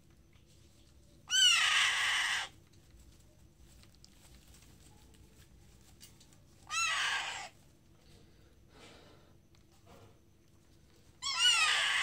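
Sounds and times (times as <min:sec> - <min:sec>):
parakeet chick begging screeches: 0:01.3 - 0:02.5, 0:06.7 - 0:07.5, 0:11.2 - 0:12.0.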